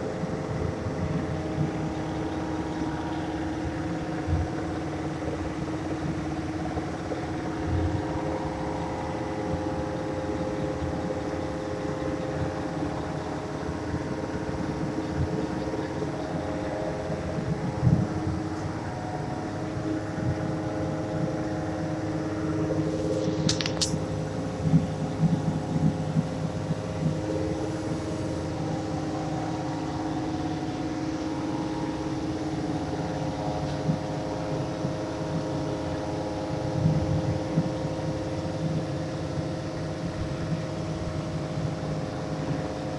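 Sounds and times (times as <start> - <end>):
machine hum: 0.0 - 42.9
sharp click: 23.4 - 24.0.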